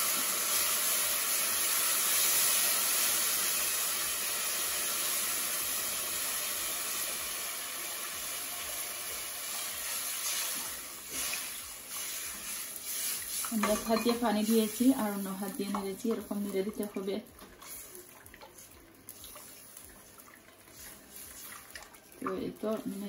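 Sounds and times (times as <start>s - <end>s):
semolina hissing and sizzling: 0.0s - 23.0s
spatula scraping and stirring: 12.0s - 18.8s, 20.6s - 21.8s.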